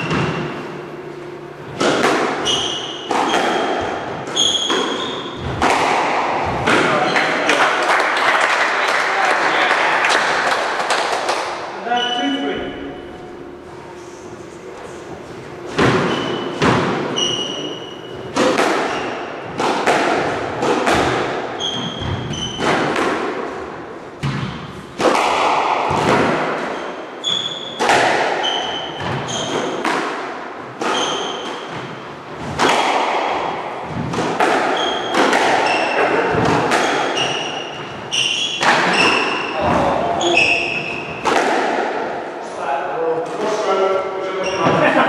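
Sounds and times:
squash ball hit by rackets: 0.0s - 0.9s, 1.7s - 7.8s, 15.7s - 42.3s
shoes squeaking on wooden floor: 2.4s - 5.5s, 15.4s - 18.3s, 21.6s - 22.6s, 28.4s - 29.8s, 30.8s - 32.0s, 37.1s - 41.2s, 44.4s - 44.8s.

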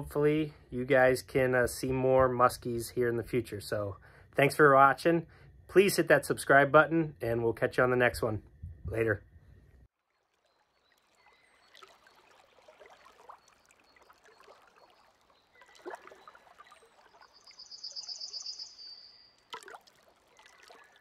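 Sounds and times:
water trickling and splashing: 9.9s - 21.0s.

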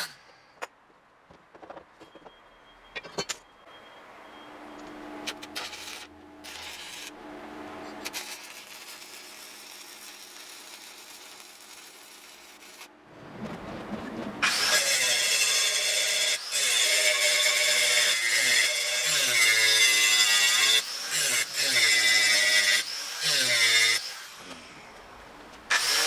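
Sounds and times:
angle grinder grinding steel: 5.4s - 7.2s, 7.8s - 12.9s
arc welding crackling hiss: 5.4s - 7.2s, 8.0s - 12.9s.

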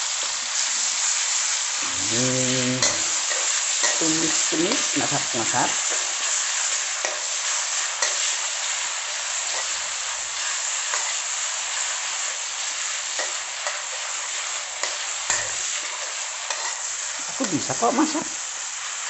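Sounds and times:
spice paste sizzling in oil: 0.0s - 19.0s
metal spatula scraping pan: 14.8s - 17.0s.

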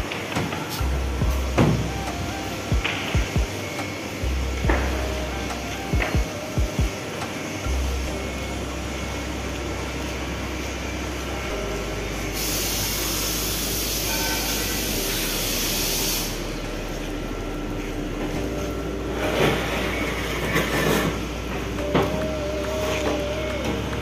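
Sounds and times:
compressed air hissing: 12.3s - 16.6s.

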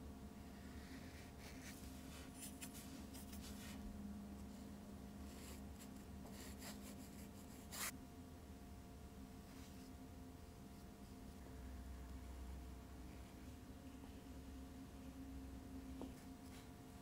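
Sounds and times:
faint steady hum: 0.0s - 17.0s
paintbrush strokes on paper: 0.5s - 8.0s, 9.4s - 11.4s.

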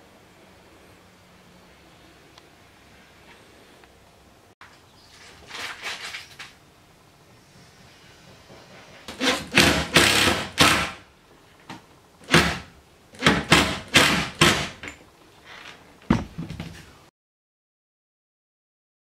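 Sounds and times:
impact driver driving screws: 9.1s - 11.0s, 12.2s - 14.9s.

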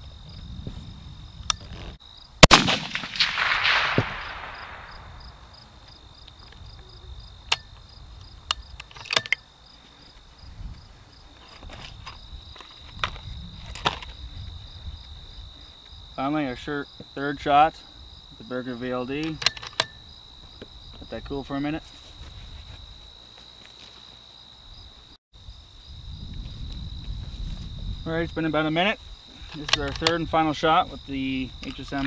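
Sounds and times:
crickets chirping: 0.0s - 32.0s
rifle shot with echo: 2.4s - 5.5s
rifle bolt metallic clicks: 8.4s - 9.4s, 19.2s - 20.0s, 29.6s - 30.2s.

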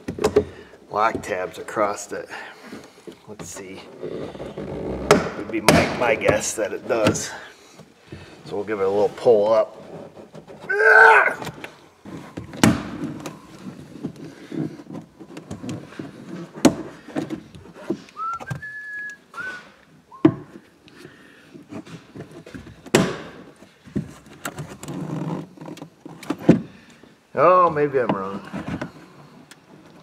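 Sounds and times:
high whistle-like squeak: 18.2s - 20.4s.

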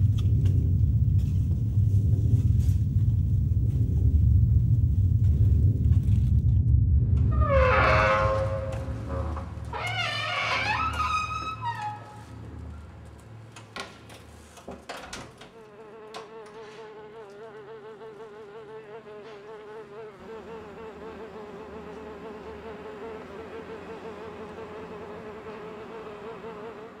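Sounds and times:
fly buzzing: 15.5s - 27.0s.

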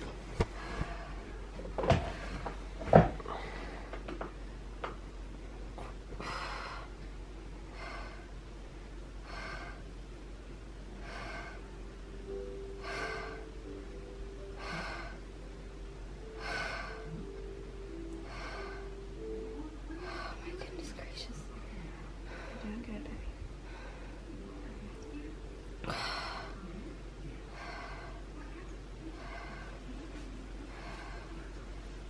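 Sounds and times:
woman breathing deeply: 0.4s - 4.0s, 6.1s - 8.4s, 9.2s - 10.0s, 10.9s - 11.8s, 12.7s - 13.6s, 14.4s - 15.4s, 16.2s - 17.3s, 17.9s - 19.1s, 21.8s - 22.8s, 23.6s - 24.4s, 25.8s - 26.7s, 27.5s - 28.3s.

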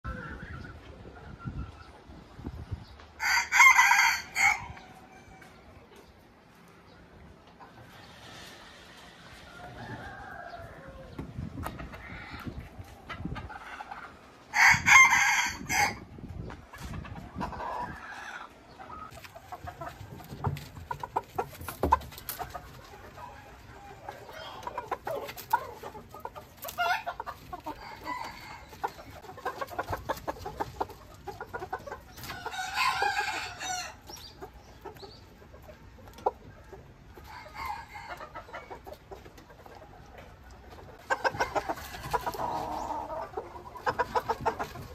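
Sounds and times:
roosters crowing: 3.2s - 5.6s, 8.8s - 11.3s, 14.5s - 16.1s, 26.7s - 29.2s, 32.1s - 34.2s, 37.2s - 38.8s.

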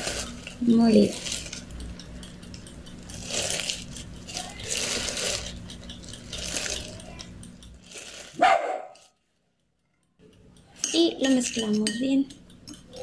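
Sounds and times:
teaspoon scraping spice: 0.0s - 8.4s
steady low hum: 0.0s - 13.0s.

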